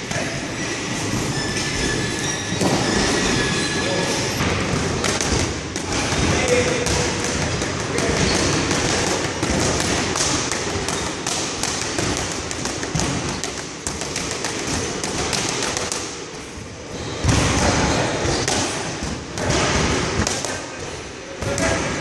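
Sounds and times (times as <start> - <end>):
boxing gloves striking focus mitts: 4.4 - 16.2.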